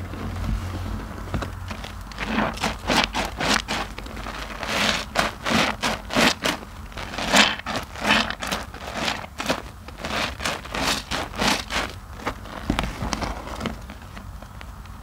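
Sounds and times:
wet loofah squelching: 1.7 - 12.6
lather crackling: 1.7 - 12.7.

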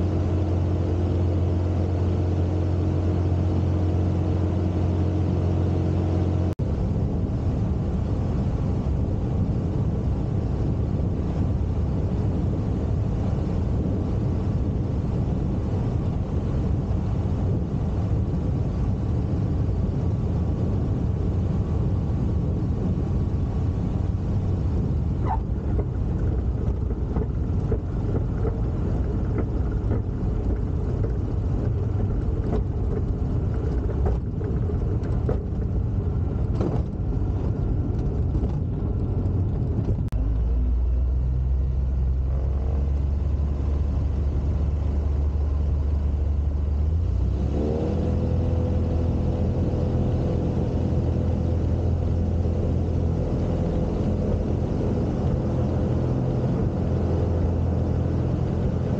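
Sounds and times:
aircraft engine running: 0.0 - 58.9
wind and airframe noise: 0.0 - 58.9.

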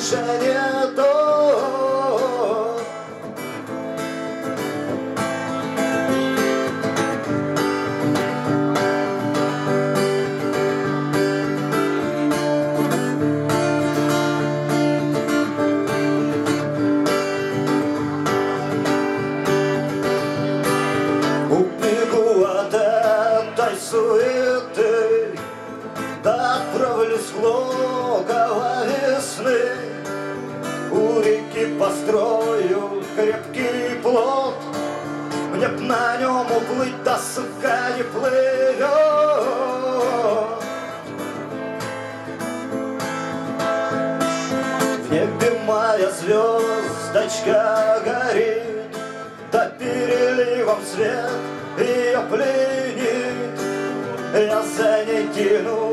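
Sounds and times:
man singing: 0.0 - 3.3, 21.2 - 41.1, 44.2 - 55.9
acoustic guitar strumming: 0.0 - 55.9.

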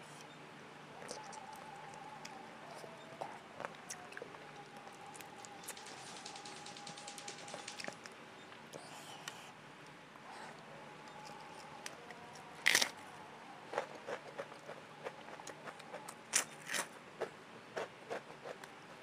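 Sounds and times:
smacking chews: 1.0 - 6.4, 10.4 - 13.1, 13.7 - 19.0
person crunching food: 11.2 - 13.1, 13.7 - 18.6.

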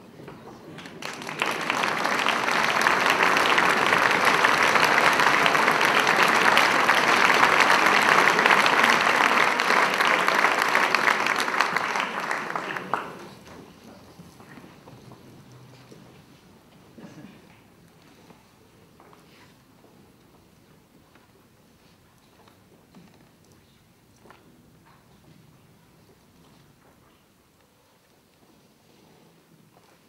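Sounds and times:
audience applauding: 0.8 - 13.5.

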